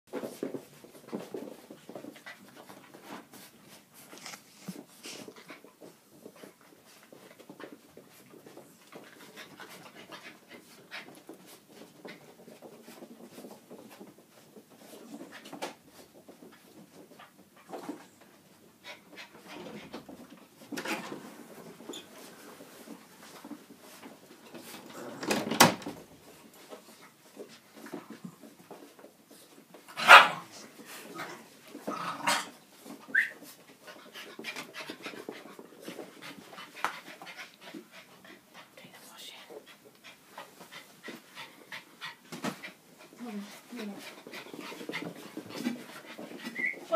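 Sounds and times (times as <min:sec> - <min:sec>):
dogs scuffling: 0:00.1 - 0:46.9
puppies panting: 0:01.1 - 0:17.8, 0:32.8 - 0:38.8, 0:39.5 - 0:46.9
puppy yelping: 0:46.5 - 0:46.9.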